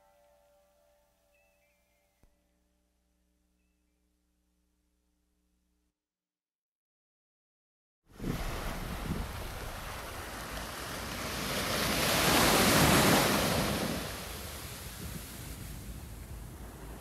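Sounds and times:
wave breaking on beach: 0:08.1 - 0:17.0
wind rumble on microphone: 0:08.1 - 0:17.0.

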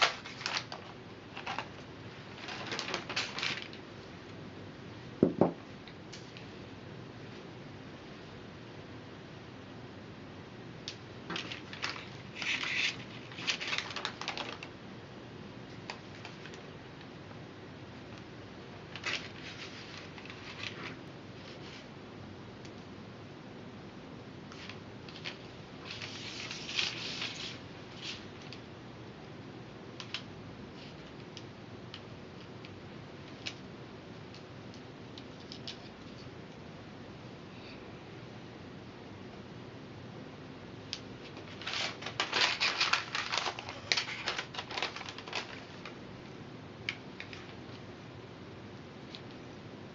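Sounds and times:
faint steady hiss: 0:00.0 - 0:49.9
straw sheet crackling and rustling: 0:41.3 - 0:46.0.

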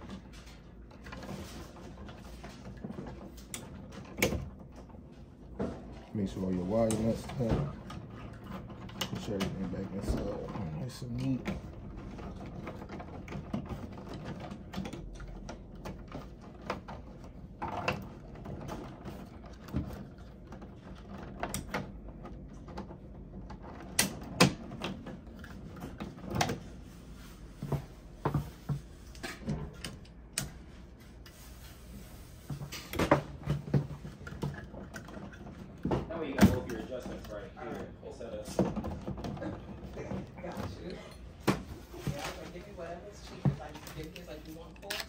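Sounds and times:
plastic and wiring clicks: 0:44.0 - 0:45.0.

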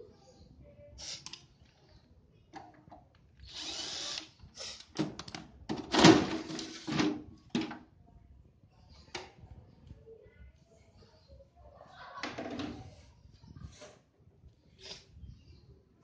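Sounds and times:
cordless drill whirring: 0:03.4 - 0:04.9.

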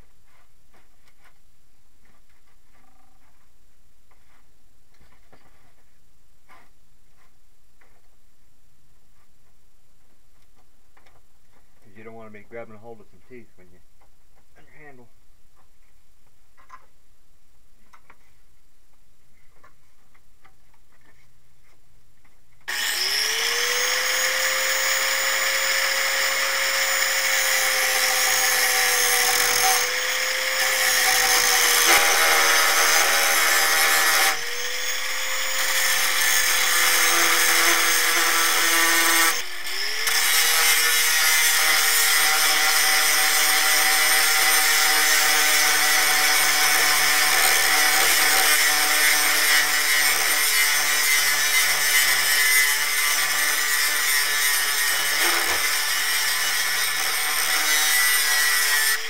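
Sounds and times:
angle grinder grinding steel: 0:22.7 - 0:59.0.

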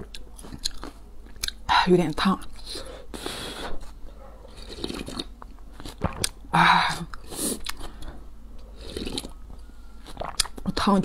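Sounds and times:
swallowing: 0:04.5 - 0:06.4, 0:08.7 - 0:09.4, 0:10.0 - 0:10.6
person slurping broth: 0:04.6 - 0:06.3, 0:08.8 - 0:09.4.

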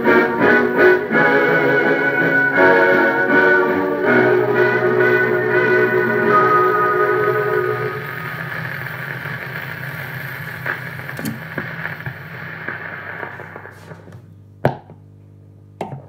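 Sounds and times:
orchestral music: 0:00.0 - 0:08.5
record surface hiss: 0:00.0 - 0:16.0
record crackles: 0:05.8 - 0:14.6.

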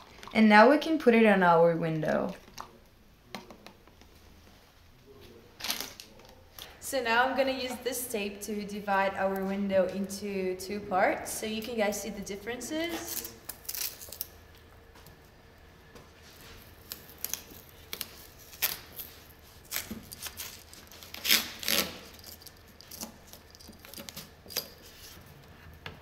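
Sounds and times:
adhesive tape rasping on glass: 0:16.8 - 0:25.2.

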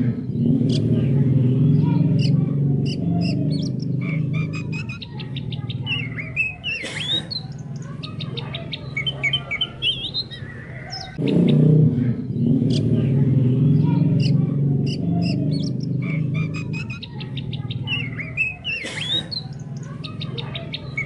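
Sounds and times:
low pulsing chorus: 0:00.0 - 0:06.6, 0:11.2 - 0:18.6
songbird chirping and whistling: 0:00.3 - 0:11.7, 0:13.7 - 0:21.0.

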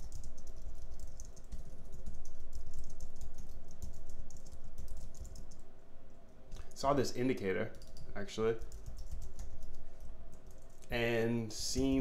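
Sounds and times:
fast typing on a keyboard: 0:00.0 - 0:05.6, 0:07.7 - 0:10.8, 0:11.6 - 0:12.0.

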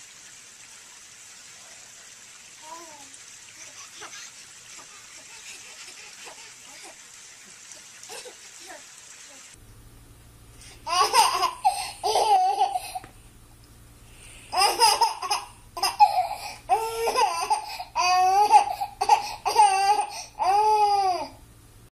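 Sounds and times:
baby laughing: 0:02.6 - 0:08.9, 0:10.8 - 0:13.1, 0:14.5 - 0:21.3.

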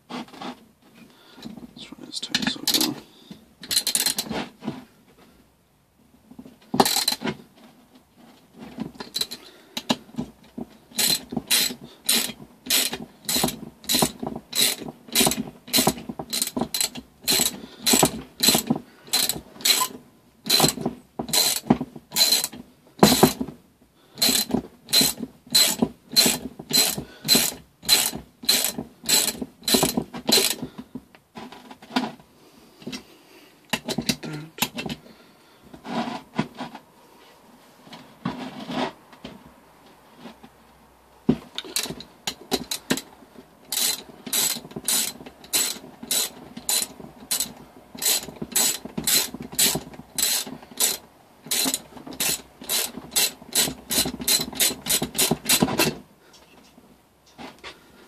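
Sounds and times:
ratchet wrench clicking: 0:03.6 - 0:04.2, 0:06.8 - 0:07.2, 0:10.9 - 0:19.9, 0:22.2 - 0:22.5, 0:24.2 - 0:30.6, 0:43.7 - 0:55.6.

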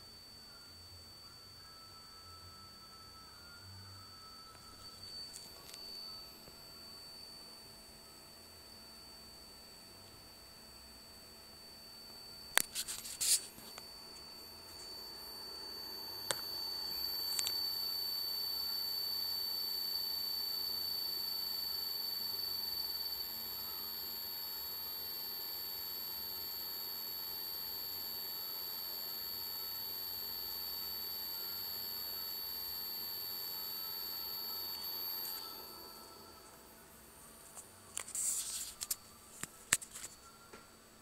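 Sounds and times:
hard drive high-pitched tone: 0:00.0 - 0:41.0.

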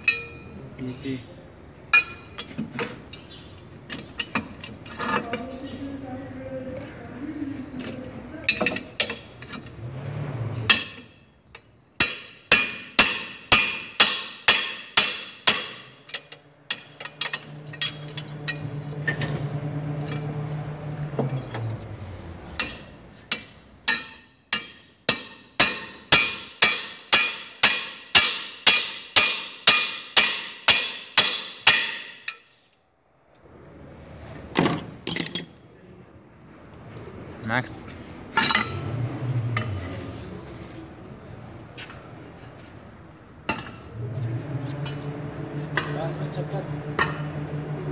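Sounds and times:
hammer striking steel drift: 0:10.7 - 0:11.2, 0:12.0 - 0:21.9, 0:22.5 - 0:32.5, 0:43.5 - 0:47.9
steady low hum: 0:12.0 - 0:23.8, 0:35.8 - 0:47.9.

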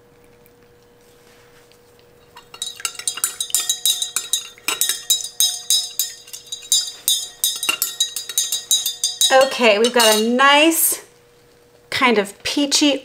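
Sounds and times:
utensil stirring liquid: 0:02.2 - 0:10.4
utensil clinking against container: 0:02.3 - 0:10.5.

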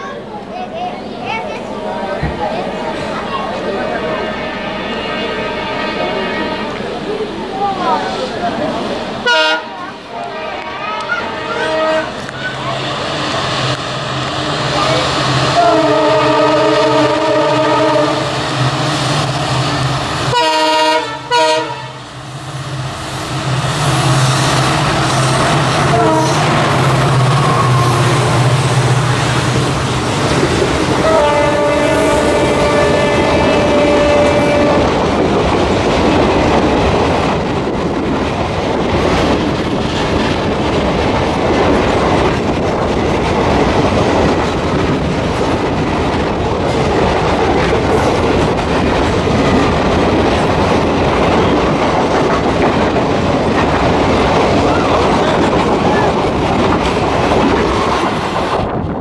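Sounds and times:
train rushing noise: 0:00.0 - 0:59.0
train horn blast: 0:04.1 - 0:07.0, 0:09.2 - 0:12.3, 0:15.5 - 0:18.3, 0:20.3 - 0:22.0, 0:25.8 - 0:28.2, 0:31.0 - 0:34.9
train wheels clattering on rails: 0:23.2 - 0:59.0.

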